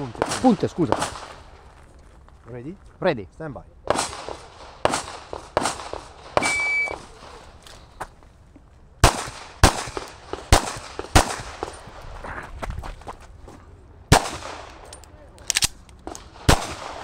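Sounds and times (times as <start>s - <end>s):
pistol shots: 0.0s - 1.3s, 3.9s - 7.2s, 9.0s - 11.8s, 14.1s - 17.0s
shot timer beep: 6.4s - 7.0s.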